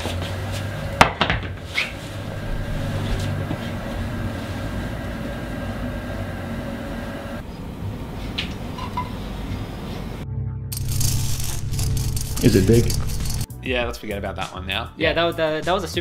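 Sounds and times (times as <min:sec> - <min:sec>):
steady low hum: 0:00.0 - 0:13.5.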